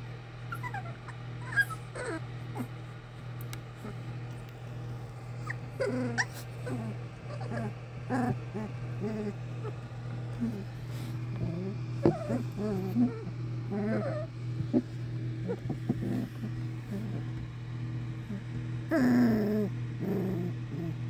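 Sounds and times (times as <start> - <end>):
steady low hum: 0.0 - 21.0
puppies whimpering and squeaking: 0.5 - 2.7, 5.4 - 8.6, 12.0 - 14.3.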